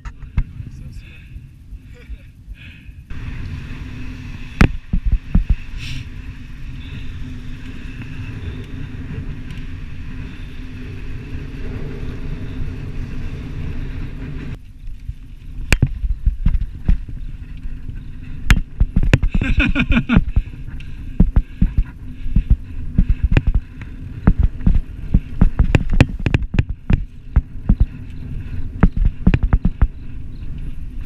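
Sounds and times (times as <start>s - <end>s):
bike tyres rolling on sand: 0.0s - 31.0s
wind buffeting microphone: 0.0s - 31.0s
bike knocks and rattles: 4.4s - 5.7s, 14.3s - 31.0s.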